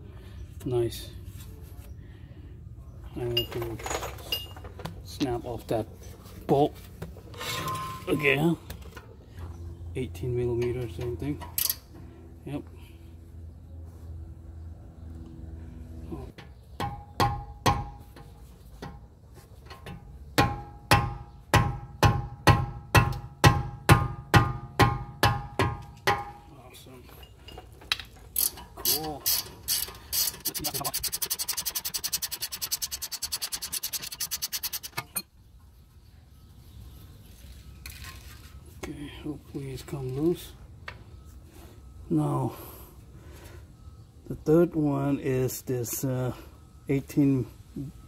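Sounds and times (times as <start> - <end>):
ratchet clicking: 28.4 - 35.2.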